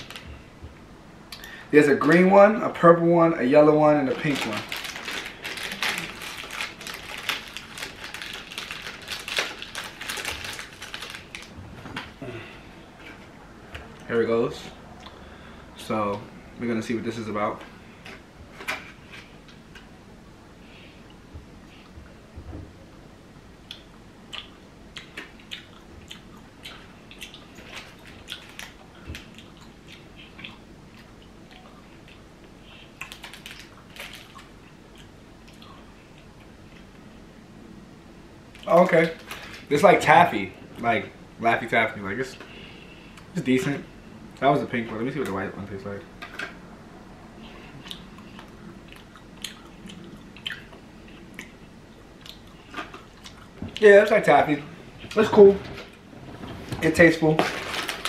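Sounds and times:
plastic packaging crinkling: 4.0s - 12.1s, 33.0s - 34.5s, 38.6s - 39.8s, 56.7s - 58.0s
person chewing candy: 23.7s - 36.8s, 47.7s - 51.6s.

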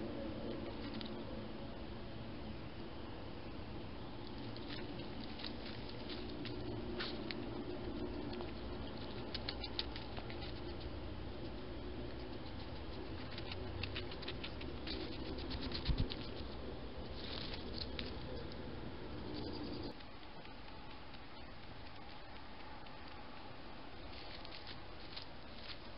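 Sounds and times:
rustling in dry leaves: 4.2s - 10.8s, 12.7s - 18.3s, 24.0s - 25.9s.

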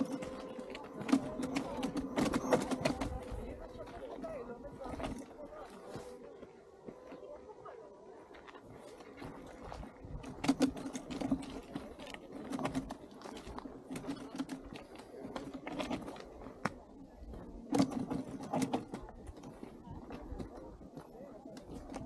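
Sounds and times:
footsteps on gravel trail: 0.0s - 17.7s, 19.0s - 22.0s.

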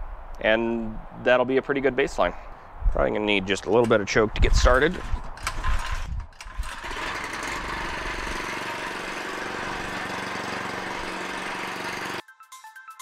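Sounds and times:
small engine running: 4.9s - 12.2s.

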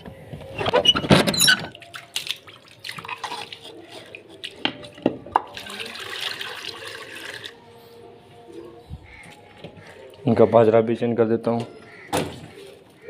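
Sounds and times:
water poured from bucket: 1.7s - 4.6s, 5.5s - 7.6s.

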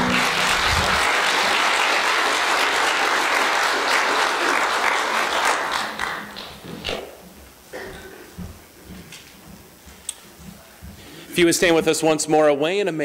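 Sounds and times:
congregation applauding: 0.0s - 6.6s.

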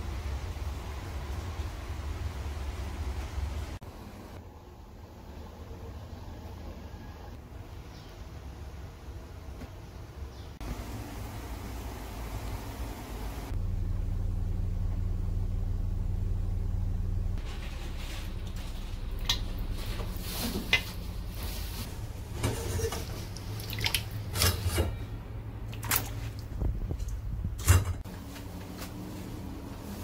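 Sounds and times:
low hum: 10.6s - 30.0s.

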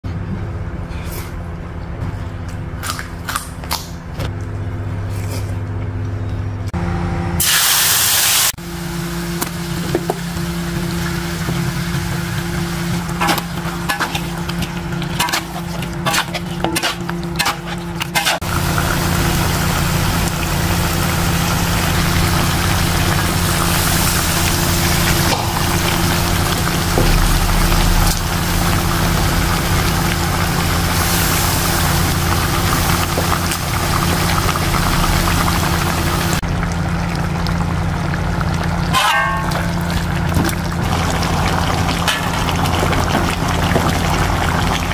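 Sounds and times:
food sizzling: 7.4s - 44.9s
low constant hum: 11.9s - 44.9s.

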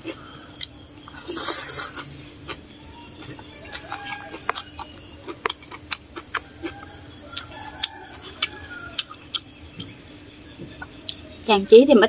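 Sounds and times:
hens clucking: 0.0s - 11.8s
wet mouth clicks chewing noodles: 3.2s - 6.8s.

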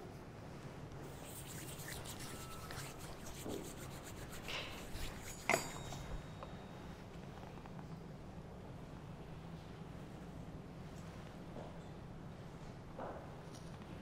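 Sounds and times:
cloth rustles and light scrapes: 1.0s - 6.3s
metal vessel clink: 5.0s - 6.4s.

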